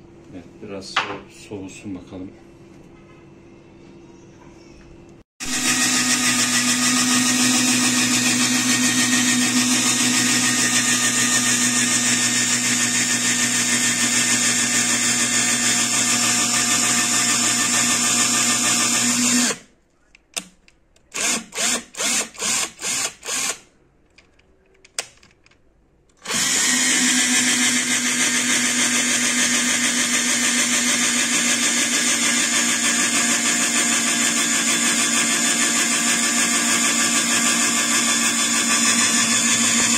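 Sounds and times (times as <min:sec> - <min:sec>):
electric drill boring into plastic: 0:05.4 - 0:19.6, 0:21.2 - 0:23.6, 0:26.2 - 0:39.9.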